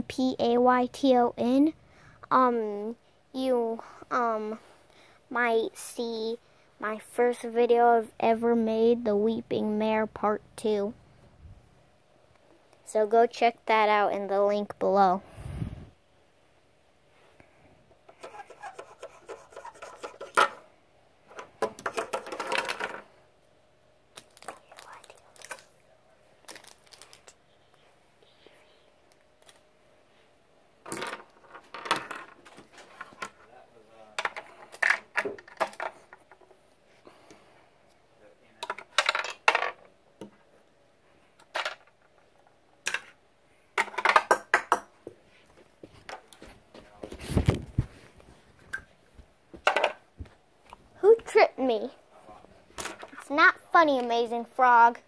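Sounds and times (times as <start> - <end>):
phone rubbing against microphone: 18.2 - 20.4.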